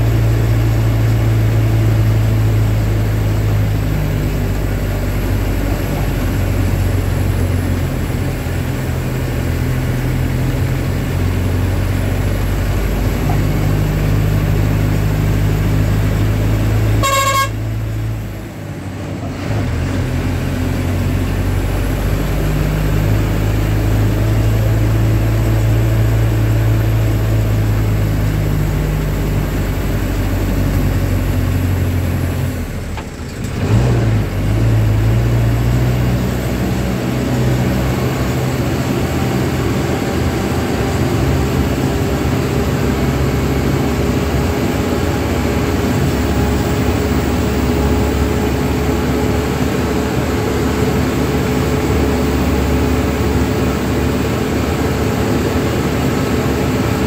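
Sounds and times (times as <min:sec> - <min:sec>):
vehicle engine running: 0:00.0 - 0:57.0
car horn toot: 0:17.0 - 0:17.9.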